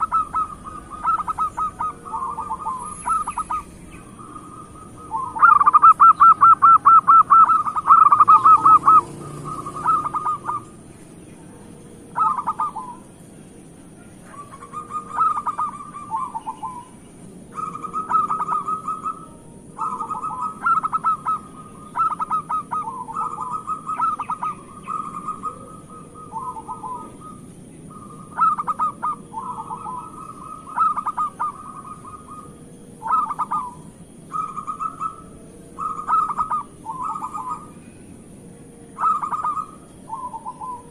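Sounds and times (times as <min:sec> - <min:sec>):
dove cooing trills: 0:00.0 - 0:40.9.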